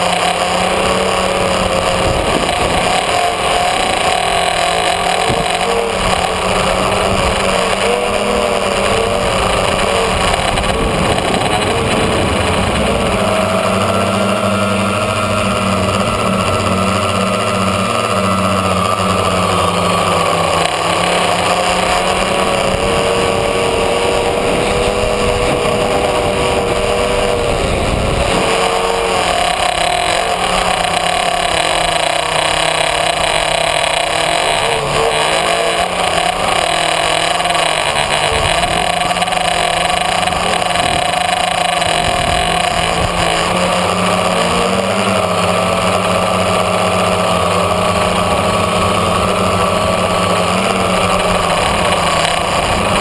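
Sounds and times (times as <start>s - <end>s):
drone motors and propellers whining: 0.0s - 53.0s.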